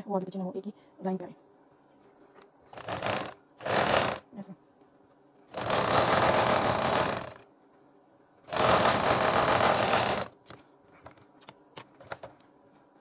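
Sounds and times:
sewing machine stitching: 2.7s - 4.2s, 5.5s - 7.4s, 8.5s - 10.4s.

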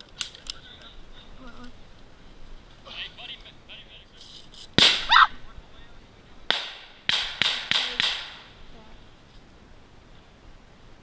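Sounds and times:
airsoft rifle shots: 4.8s - 5.2s, 6.5s - 8.6s
loud short cry: 5.0s - 5.4s.

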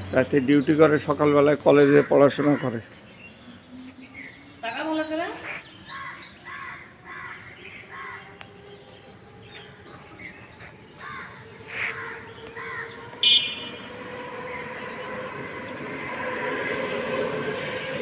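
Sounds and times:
outdoor background hum: 0.0s - 18.0s
crows cawing: 5.8s - 8.4s, 11.0s - 13.7s.

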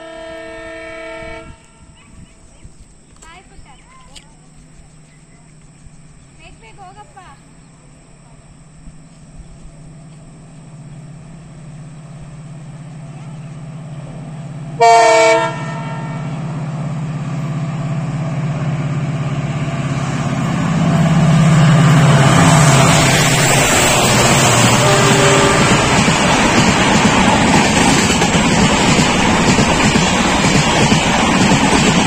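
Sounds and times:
train horn blast: 0.0s - 2.0s, 14.8s - 16.6s, 23.6s - 26.1s
diesel locomotive engine drone: 0.0s - 32.0s
train rushing past: 5.6s - 32.0s.

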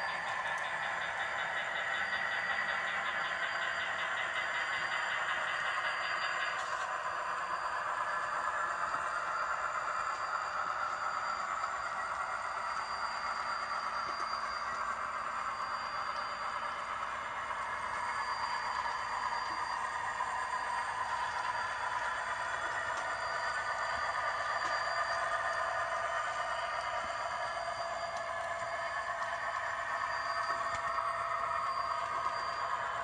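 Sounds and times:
model train running on track: 0.0s - 33.0s.

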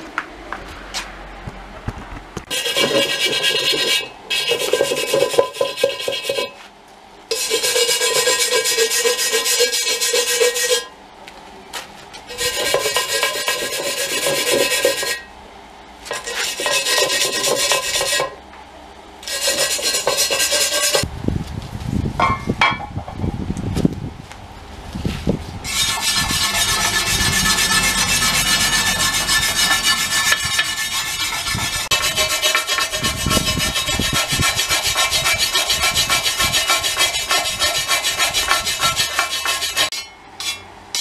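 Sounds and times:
handling noise of iron: 2.4s - 10.9s, 22.2s - 23.2s, 25.7s - 41.0s
hand brush scrubbing cast iron: 2.5s - 6.7s, 7.3s - 10.9s, 12.3s - 15.3s, 16.1s - 18.4s, 19.2s - 21.0s, 25.7s - 41.0s.

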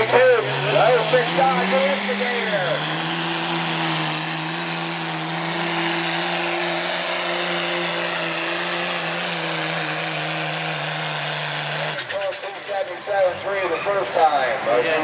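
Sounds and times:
diesel engine at full throttle: 0.0s - 15.0s.

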